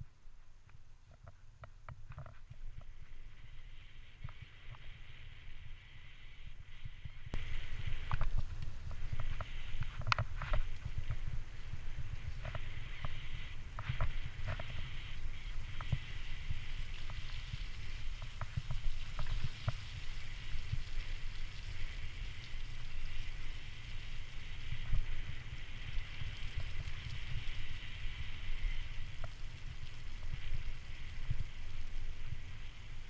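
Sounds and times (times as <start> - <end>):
bicycle tyres rolling on wet mud: 0.0 - 33.0
wind buffeting microphone: 6.7 - 33.0.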